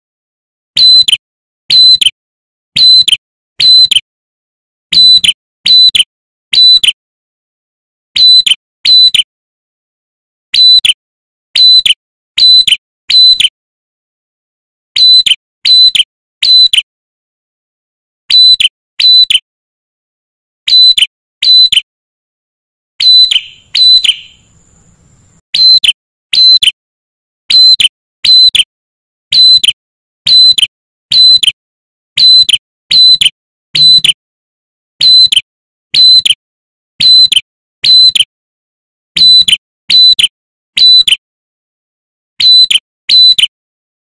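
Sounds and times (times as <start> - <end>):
bird chirping: 0.8 - 2.1, 15.0 - 16.8, 18.3 - 19.4, 20.7 - 21.8, 23.0 - 26.6.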